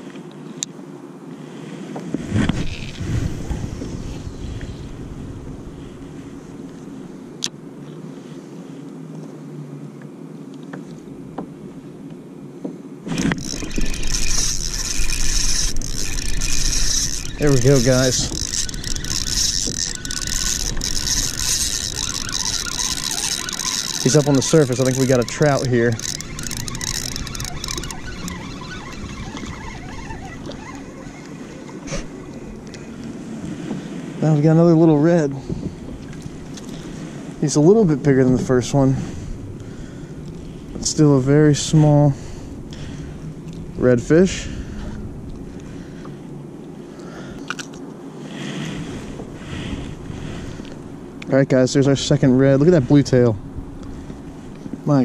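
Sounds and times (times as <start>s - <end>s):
water noise: 0.0s - 8.9s, 12.9s - 55.0s
wind: 0.0s - 55.0s
fishing reel clicks: 13.1s - 31.6s.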